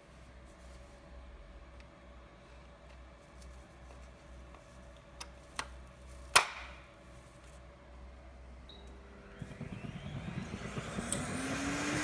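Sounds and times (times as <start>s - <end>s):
loud plastic snap: 6.3s - 6.8s.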